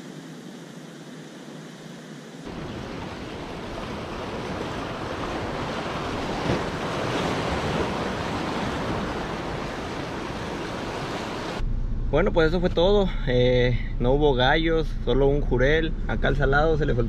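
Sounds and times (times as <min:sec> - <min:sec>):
surf breaking against rocks: 0:02.5 - 0:11.6.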